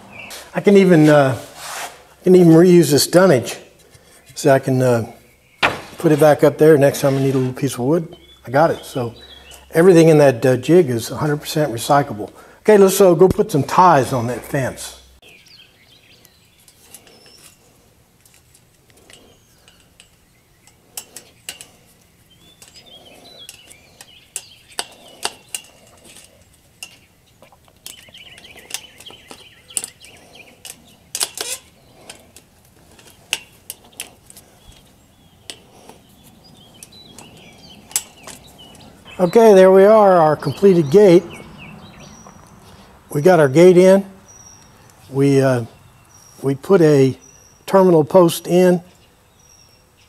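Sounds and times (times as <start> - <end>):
pliers clinking on metal: 27.7 - 34.9, 36.7 - 38.8.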